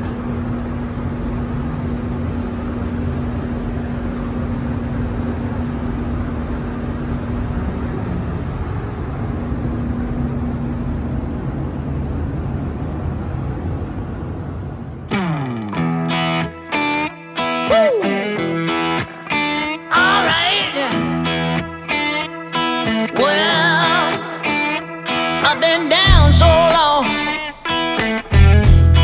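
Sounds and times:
ventilation air rushing: 0:00.0 - 0:16.9
steady hum: 0:00.0 - 0:29.0.

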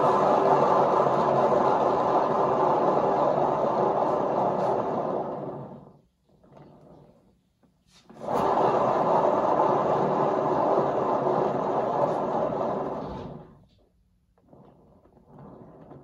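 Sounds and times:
turntable bearing spinning: 0:00.0 - 0:07.4, 0:08.1 - 0:13.4.

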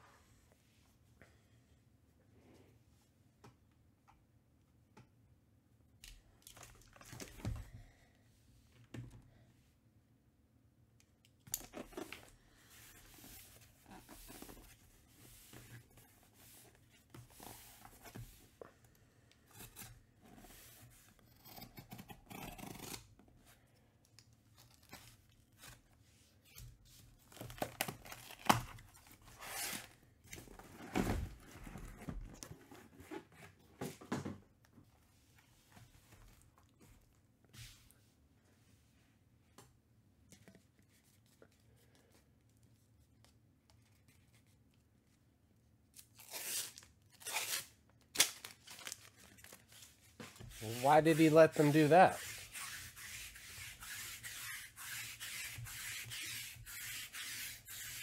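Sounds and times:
wrappers tearing: 0:46.0 - 0:49.8.

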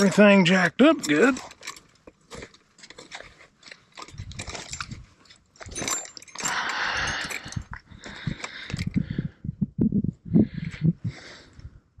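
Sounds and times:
gear handling clicks and knocks: 0:00.0 - 0:09.0.

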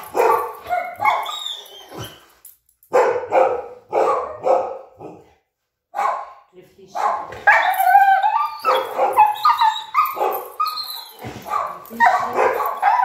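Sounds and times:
dog whining and yelping: 0:00.1 - 0:02.5, 0:07.5 - 0:13.0.

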